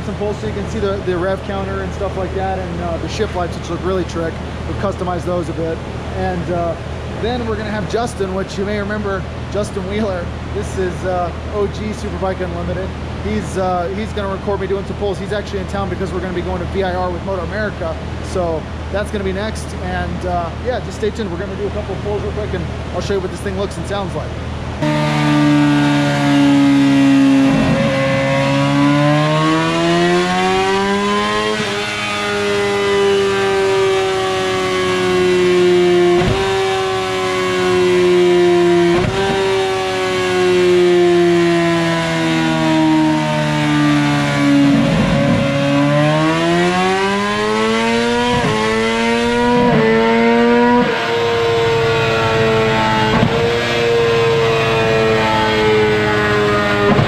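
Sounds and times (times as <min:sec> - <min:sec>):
motorcycle engine revving: 0:24.7 - 0:57.0.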